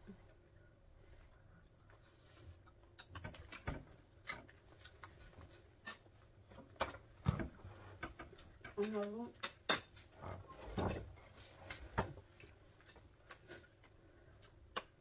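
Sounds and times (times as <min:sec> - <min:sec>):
chewing and mouth clicks: 0:04.2 - 0:06.0.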